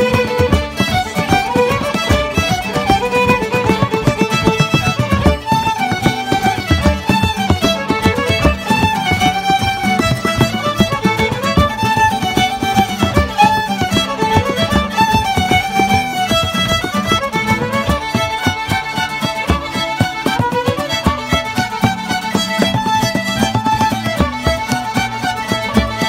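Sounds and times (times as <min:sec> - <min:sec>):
banjo: 0:00.0 - 0:26.0
fiddles playing a folk tune: 0:00.0 - 0:26.0
strummed acoustic guitar: 0:00.0 - 0:26.0.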